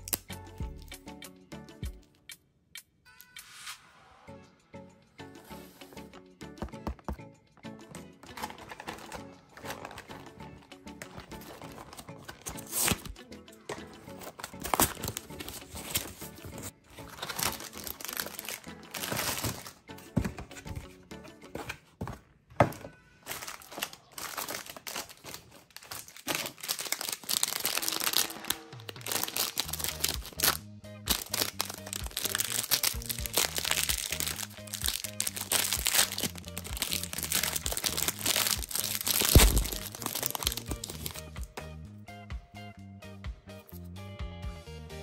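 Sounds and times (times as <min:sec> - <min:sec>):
snack box and wrapper torn open: 0:00.0 - 0:00.4, 0:11.1 - 0:13.2, 0:14.4 - 0:16.2, 0:17.0 - 0:19.7, 0:23.3 - 0:41.2
light background music: 0:00.0 - 0:45.0
wrapper crinkling: 0:08.2 - 0:10.4, 0:11.0 - 0:13.1, 0:14.2 - 0:19.8, 0:23.2 - 0:41.2.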